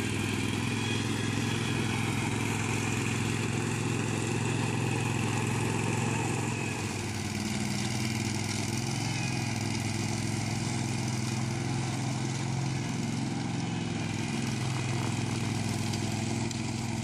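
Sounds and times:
mower engine droning: 0.0 - 17.0.

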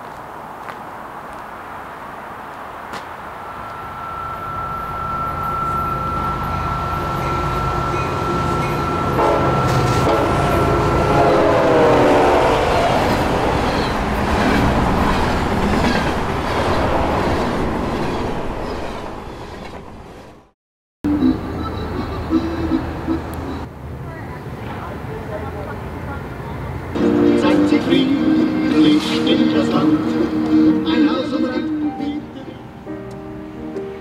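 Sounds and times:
passing train rumbling: 0.0 - 34.0
low bending tone: 3.4 - 14.2
thin high squeal: 3.5 - 10.7.

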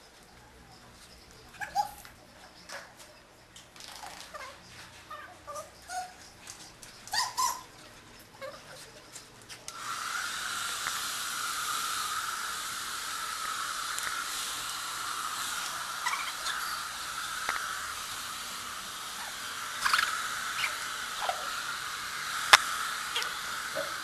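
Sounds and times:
puppy whimpering and yipping: 1.5 - 2.1, 4.3 - 8.9, 16.0 - 16.8
hair dryer running: 9.7 - 24.0.

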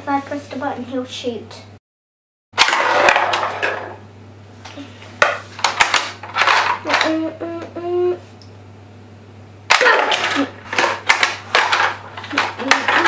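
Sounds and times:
plastic toy clatter: 5.6 - 7.2, 9.7 - 13.0.

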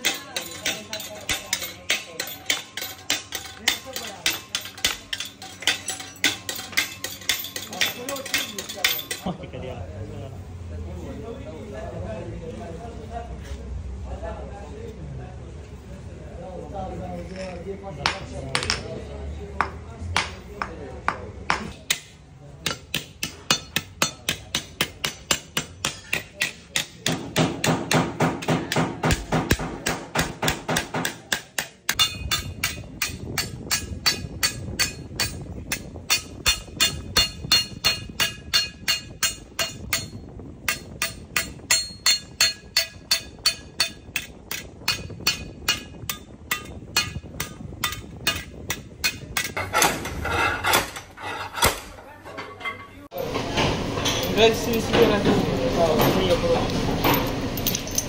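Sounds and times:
hammer beating sheet metal: 0.0 - 9.2, 20.2 - 52.0.

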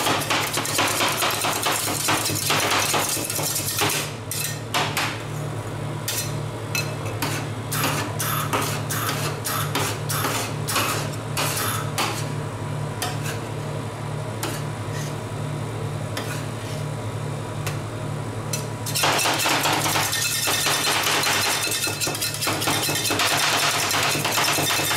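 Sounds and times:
metal spatulas chopping on metal plate: 0.0 - 5.2, 18.9 - 24.9.

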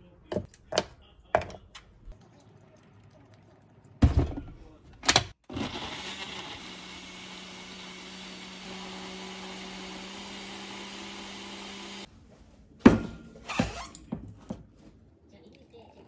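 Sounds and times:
blender motor whirring: 5.5 - 12.1.

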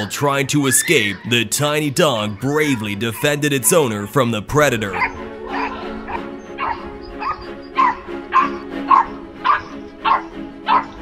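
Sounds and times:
background music held chord: 0.0 - 11.0
small dog yapping: 5.0 - 11.0.

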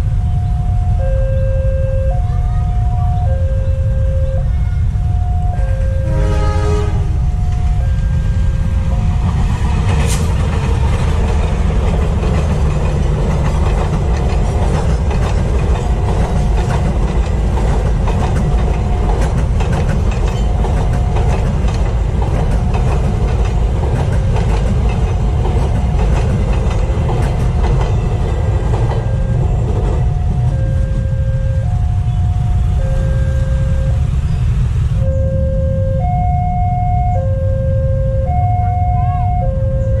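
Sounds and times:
level crossing warning tones: 0.0 - 40.0
train rumbling past: 0.0 - 40.0
wheels clacking over rail joints: 8.6 - 30.9.

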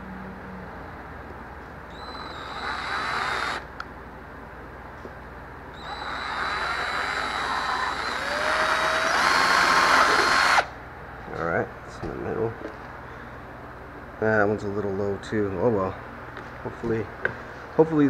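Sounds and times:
cordless drill drilling plastic: 1.9 - 3.6, 5.8 - 10.7.

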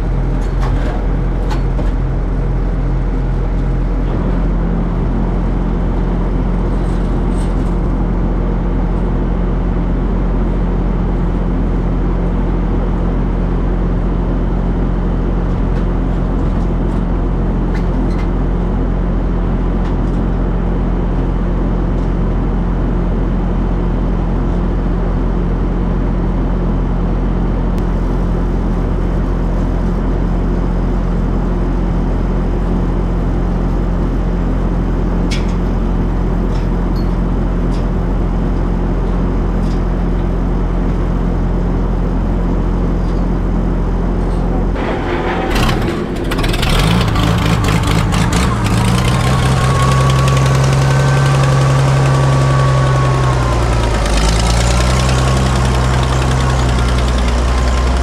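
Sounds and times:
farm machinery engine running: 0.0 - 58.0
faint clanks: 44.2 - 49.4.

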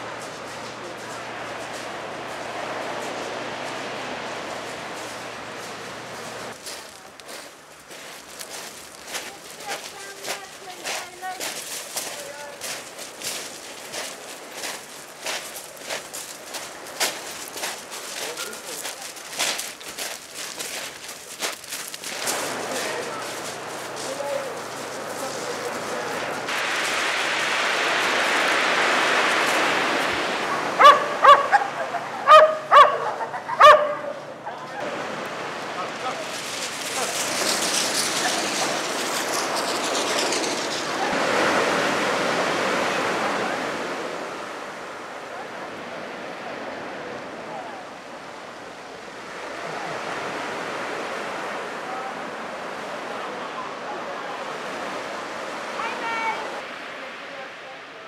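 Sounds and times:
surf washing over shingle: 0.0 - 58.0
dog barking: 30.5 - 34.8.

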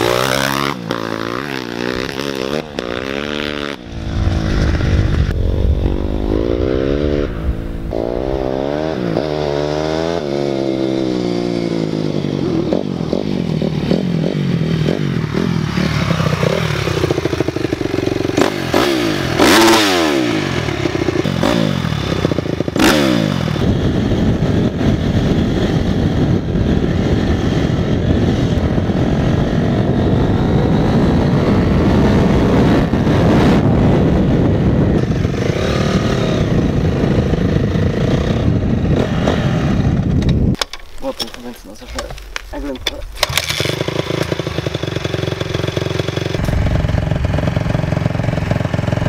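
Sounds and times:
dirt bike engine revving: 0.0 - 25.7, 40.7 - 49.0
clatter over rough ground: 40.0 - 49.0
sharp cracks: 40.2 - 45.7.

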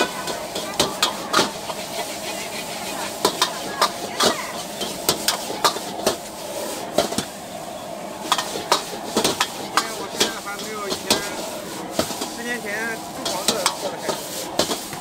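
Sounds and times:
metal ladle clanking on a wok: 0.0 - 1.8, 3.2 - 6.2
wok sizzling: 0.0 - 15.0.

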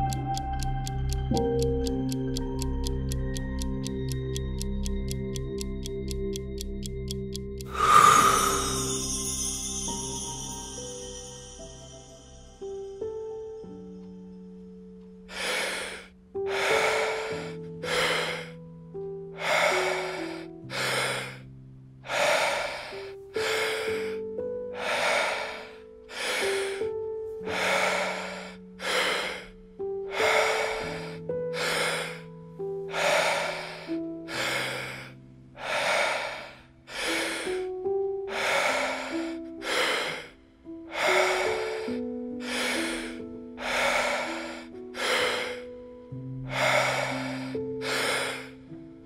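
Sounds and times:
soft music with held notes: 0.0 - 49.0
forceful deep breathing: 7.7 - 9.5, 15.3 - 18.6, 19.4 - 21.4, 22.0 - 32.3, 32.9 - 45.8, 46.5 - 48.7.

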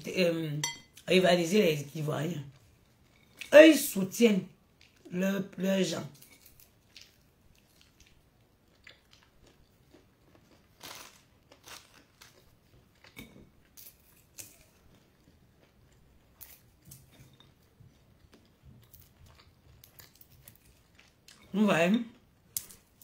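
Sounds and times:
chewing and crunching peanuts: 4.6 - 5.1, 6.1 - 23.0.

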